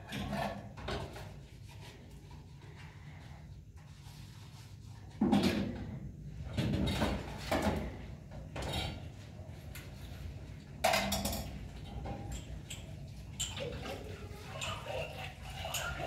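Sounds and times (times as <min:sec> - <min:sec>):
dishes clattering at a sink: 0:05.2 - 0:09.3, 0:10.8 - 0:16.0.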